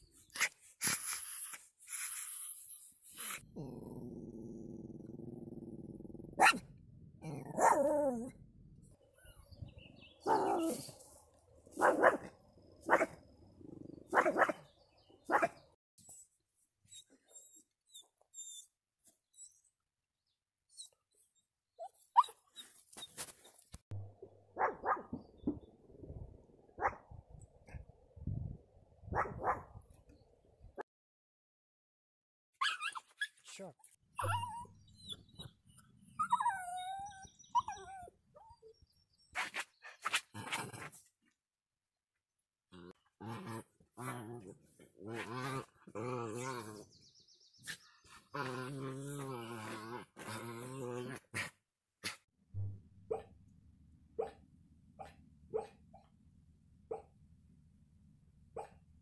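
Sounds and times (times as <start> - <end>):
small dog barking: 6.4 - 6.6, 7.3 - 8.3, 10.2 - 10.9, 11.7 - 13.2, 14.1 - 14.7, 15.3 - 15.6, 24.5 - 25.2, 26.8 - 27.0, 29.1 - 29.8, 53.1 - 53.3, 54.2 - 54.4, 55.0 - 55.8, 56.9 - 57.1, 58.6 - 58.8
small dog vocalising: 34.2 - 38.7.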